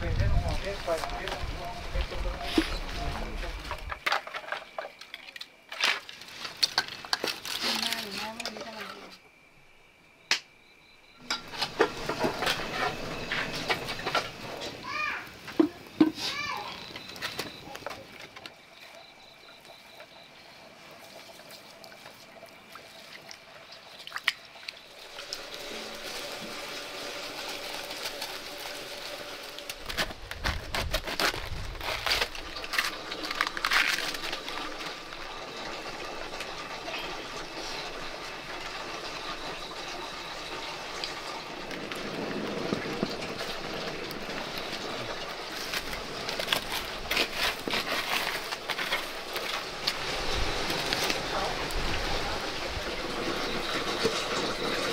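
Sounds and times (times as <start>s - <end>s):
water trickling and splashing: 11.2s - 54.9s
cleaver cutting cabbage: 29.8s - 34.4s.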